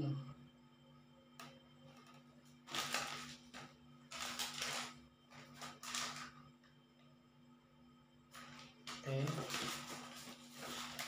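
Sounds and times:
paper packaging crinkling: 0:02.6 - 0:06.4, 0:08.3 - 0:11.0.

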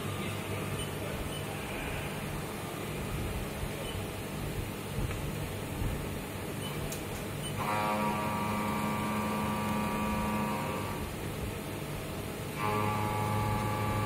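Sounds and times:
machine hum: 0:00.0 - 0:14.0
milling cutter whine: 0:07.5 - 0:11.2, 0:12.5 - 0:14.0.

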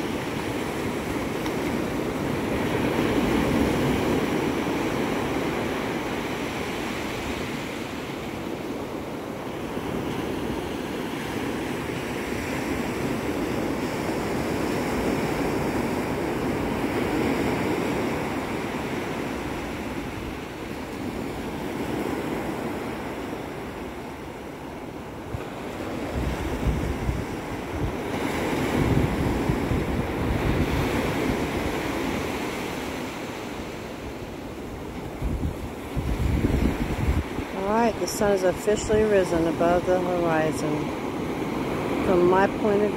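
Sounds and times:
ocean surf breaking: 0:00.0 - 0:42.9
wind buffeting microphone: 0:25.2 - 0:42.9.

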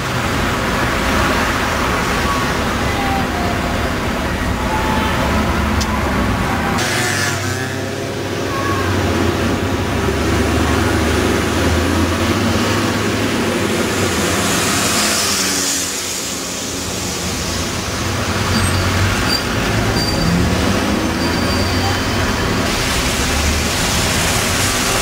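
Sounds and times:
buses passing: 0:00.0 - 0:25.0
bus air brake hiss: 0:21.7 - 0:25.0.

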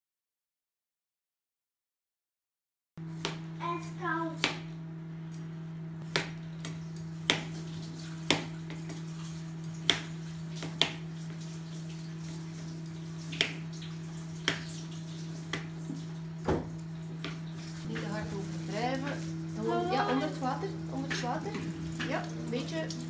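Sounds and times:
steady low hum: 0:03.0 - 0:23.0.

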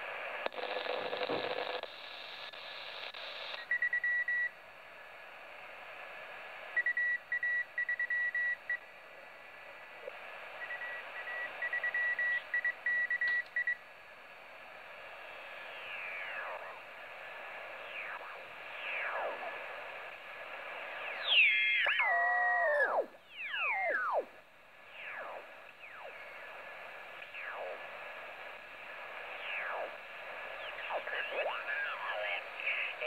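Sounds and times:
radio band hiss: 0:14.2 - 0:33.0.

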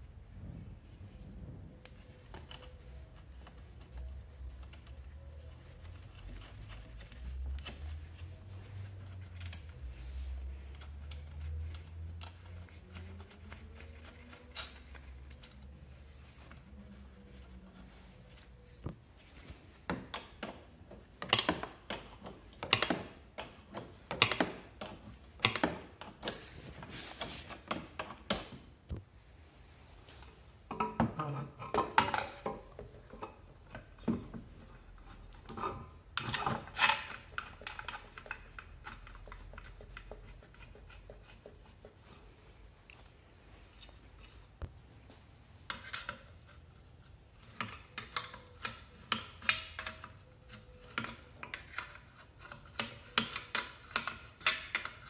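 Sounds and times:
plastic and metal parts clattering: 0:30.7 - 0:40.9.

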